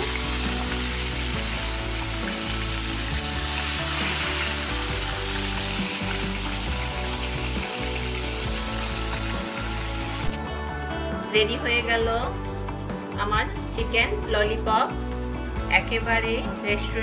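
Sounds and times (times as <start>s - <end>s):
food sizzling in hot oil: 0.0s - 10.4s.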